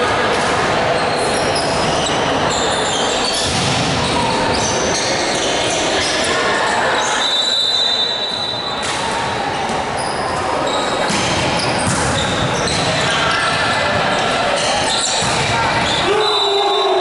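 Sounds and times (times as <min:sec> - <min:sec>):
voices echoing in hall: 0:00.0 - 0:17.0
referee's whistle: 0:07.0 - 0:08.8, 0:15.9 - 0:17.0.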